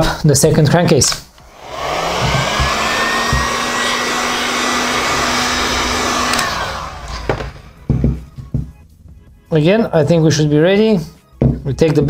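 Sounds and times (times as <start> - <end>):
heat gun fan whining: 1.3 - 8.7.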